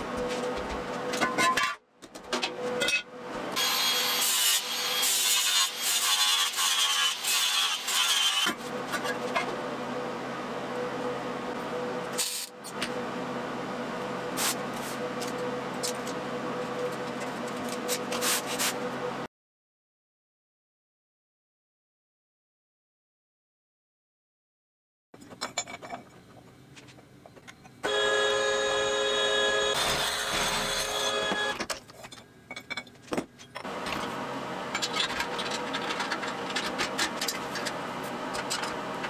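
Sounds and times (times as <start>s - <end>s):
angle grinder grinding steel: 3.6s - 8.5s, 27.9s - 31.6s.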